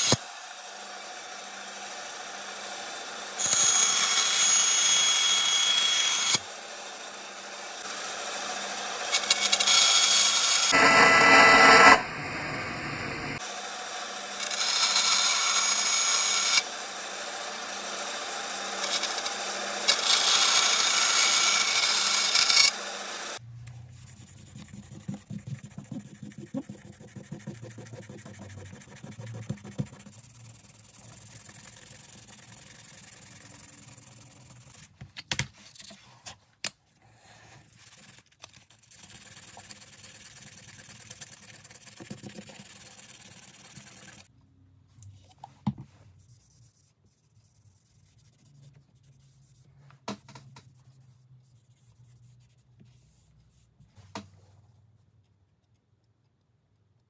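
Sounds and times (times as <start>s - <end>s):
bandsaw cutting with hiss: 0.0s - 12.0s, 13.4s - 23.4s
bandsaw motor hum: 0.0s - 23.4s
hand sanding scratchy strokes: 24.0s - 35.0s, 37.7s - 44.3s.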